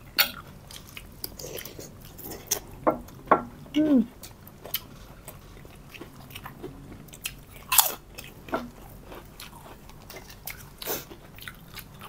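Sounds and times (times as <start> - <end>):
people chewing: 0.0 - 12.0.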